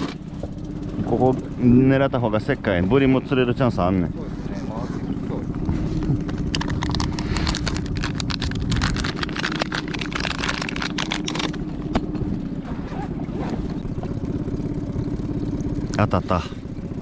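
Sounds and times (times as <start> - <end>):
boat engine running: 0.0 - 17.0
rapid clicks: 6.3 - 11.6.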